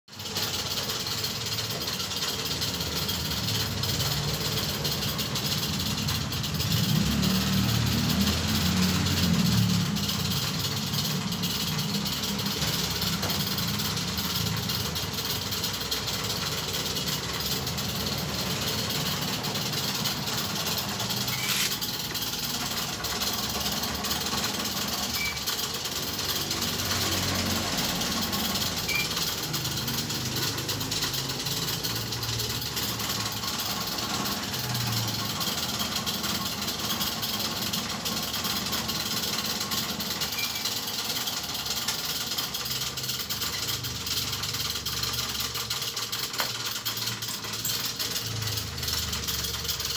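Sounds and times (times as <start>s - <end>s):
machinery hissing and rumbling: 0.2s - 49.9s.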